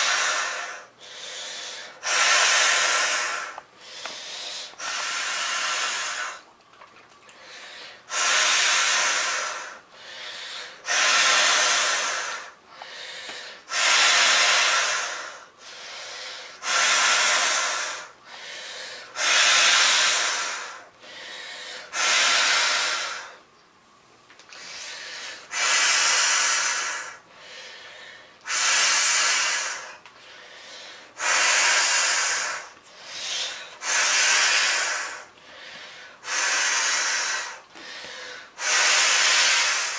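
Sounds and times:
person breathing in: 0.0s - 6.4s, 7.4s - 23.4s, 24.5s - 39.9s
person blowing into inflatable: 2.0s - 3.6s, 10.8s - 12.5s, 13.7s - 15.4s, 19.2s - 20.8s.

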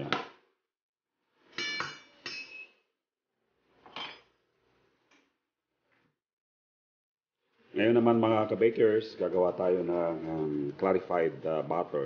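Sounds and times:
kitchenware clinking and knocking: 3.9s - 4.3s.

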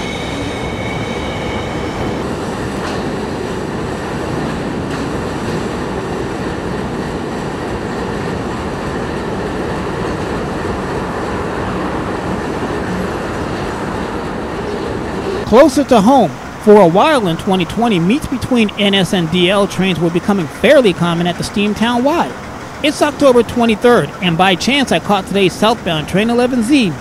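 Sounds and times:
faint wheel squeal: 0.0s - 2.2s
train wheels rumbling on rail: 0.0s - 27.0s.

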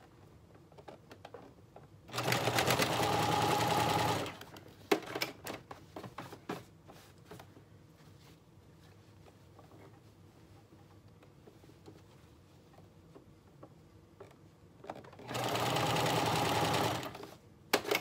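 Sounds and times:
sewing machine running: 2.1s - 4.4s, 15.2s - 17.2s.

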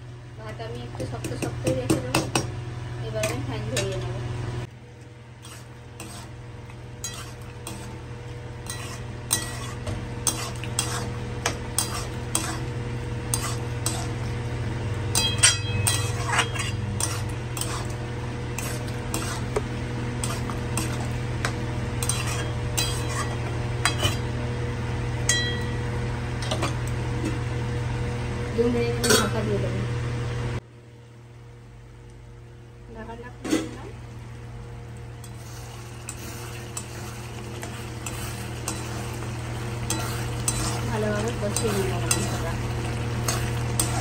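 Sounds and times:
steady low hum: 0.0s - 44.0s
light sizzle of frying: 2.4s - 29.7s, 32.0s - 44.0s
metal spatula scraping pan: 5.4s - 6.3s, 7.0s - 7.9s, 8.6s - 12.7s, 13.3s - 14.2s, 15.1s - 19.6s, 22.0s - 24.2s, 39.8s - 42.6s.

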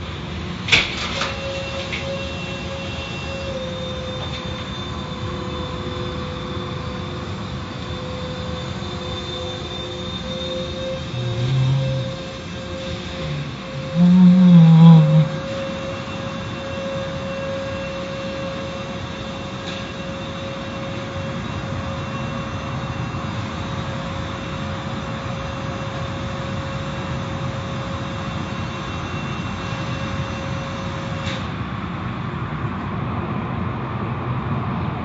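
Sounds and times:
car wash machinery rushing: 0.0s - 31.6s
steady tone: 10.3s - 16.0s.

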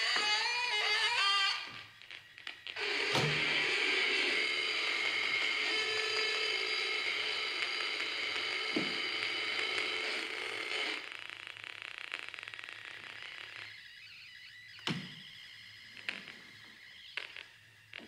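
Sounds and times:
fast buzzing clicks: 0.0s - 13.9s
high electronic drone: 2.8s - 11.1s.

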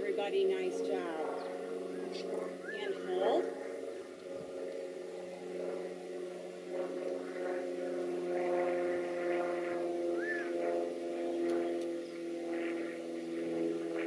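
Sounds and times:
distant engine drone: 0.0s - 14.0s.

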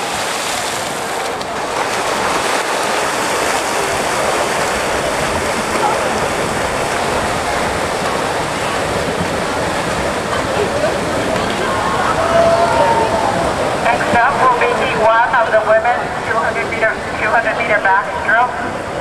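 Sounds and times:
swimmers splashing: 0.0s - 19.0s
people shouting: 11.6s - 14.7s.

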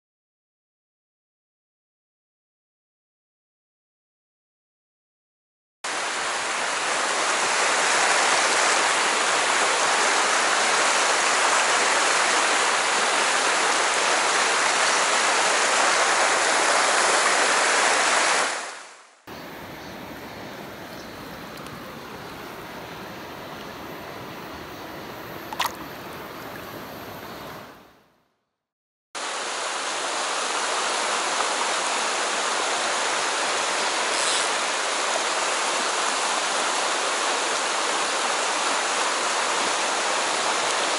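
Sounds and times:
stream rushing over rocks: 5.9s - 19.1s, 25.5s - 26.8s, 29.2s - 40.9s.

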